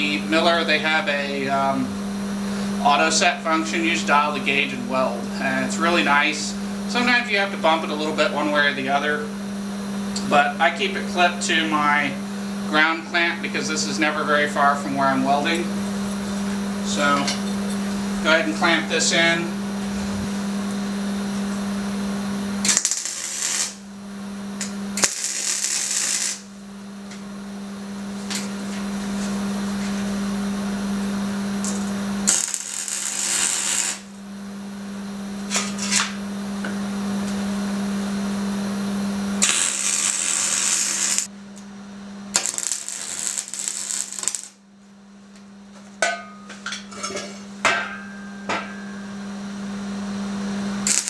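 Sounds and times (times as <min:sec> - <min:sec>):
steady low hum: 0:00.0 - 0:51.0
welding arc crackling: 0:22.6 - 0:23.9, 0:24.6 - 0:26.6, 0:31.6 - 0:34.2, 0:39.4 - 0:41.3, 0:42.3 - 0:44.6.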